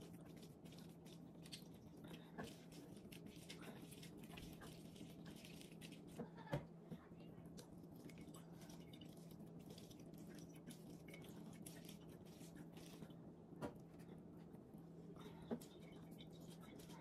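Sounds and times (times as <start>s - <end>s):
wet squishing of fruit: 0.0s - 6.5s, 7.4s - 13.3s.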